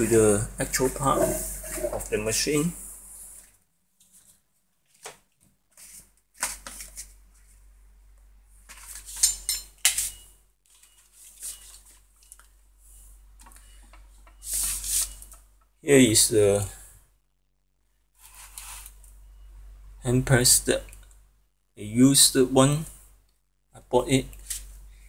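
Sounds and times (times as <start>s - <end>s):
faint low hum: 6.8s - 25.0s.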